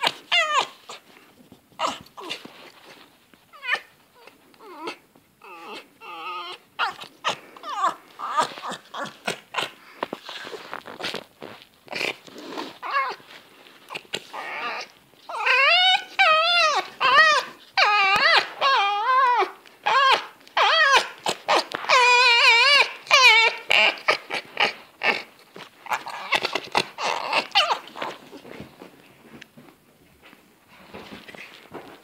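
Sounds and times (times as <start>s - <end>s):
fox whining calls: 0.0s - 1.0s, 1.8s - 2.5s, 3.6s - 10.6s, 13.9s - 28.3s.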